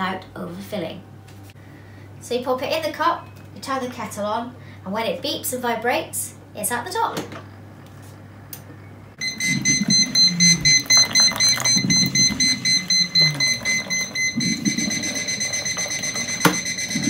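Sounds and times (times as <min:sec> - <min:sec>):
high rapid beeping: 0:09.2 - 0:17.0
hot water pouring into mug: 0:10.0 - 0:16.4.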